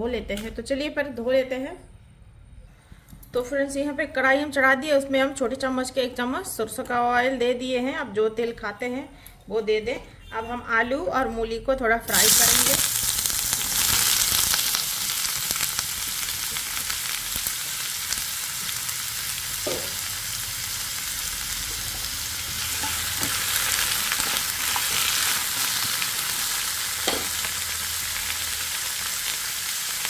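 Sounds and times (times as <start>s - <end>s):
vegetables sizzling in oil: 12.1s - 30.0s.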